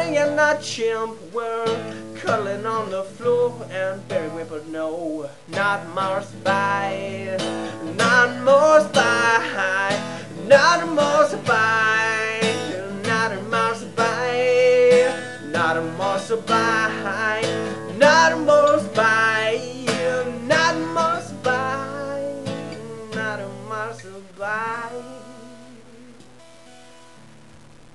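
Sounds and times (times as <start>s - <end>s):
man singing: 0.0s - 26.4s
acoustic guitar strumming: 0.0s - 27.6s.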